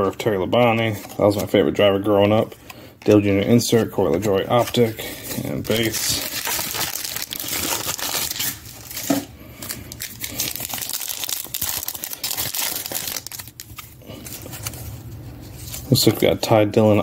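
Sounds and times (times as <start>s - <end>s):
foil wrapper crinkling and tearing: 4.5s - 16.2s.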